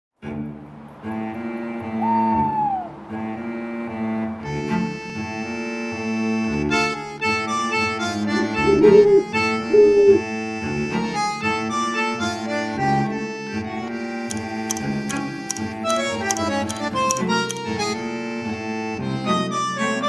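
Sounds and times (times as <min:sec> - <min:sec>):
slow melody: 0:01.4 - 0:20.0
low drone: 0:08.1 - 0:12.3.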